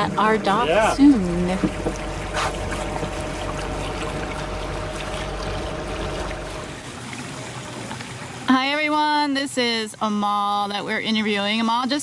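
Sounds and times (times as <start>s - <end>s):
boat engine hum: 0.0s - 11.6s
water hissing past boat: 1.0s - 6.9s.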